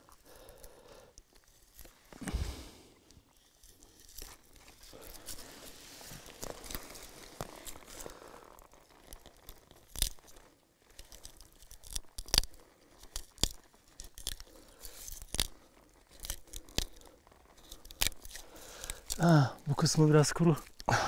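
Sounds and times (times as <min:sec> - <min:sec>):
knife prying bark crackling: 0:09.0 - 0:10.4, 0:11.0 - 0:19.3.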